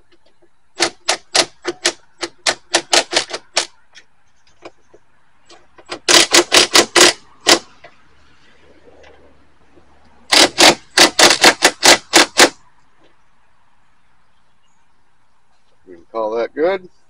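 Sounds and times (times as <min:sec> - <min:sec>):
impact driver rattling hits: 0:00.8 - 0:03.7, 0:05.8 - 0:07.7, 0:10.3 - 0:12.6.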